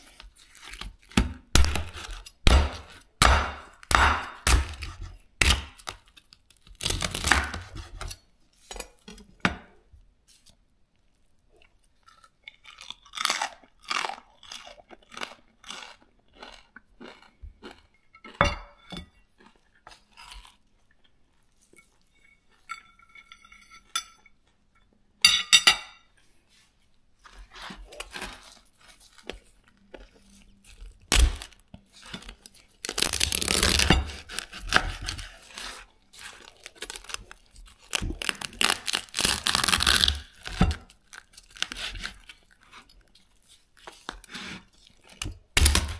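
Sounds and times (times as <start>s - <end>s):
knife crunching pork crackling: 0.0s - 8.3s, 12.0s - 18.5s, 27.5s - 45.9s.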